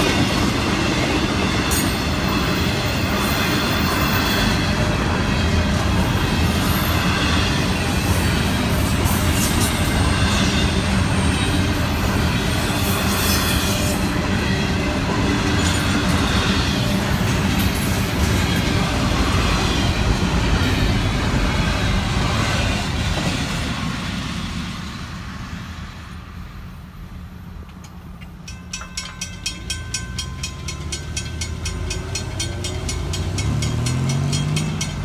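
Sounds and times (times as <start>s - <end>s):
train wheels rolling on rails: 0.0s - 35.0s
crossing bell ringing: 28.2s - 35.0s.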